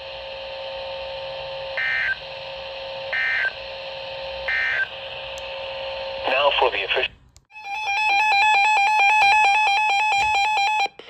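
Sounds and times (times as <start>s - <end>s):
radio speaker hum and hiss: 4.5s - 7.3s.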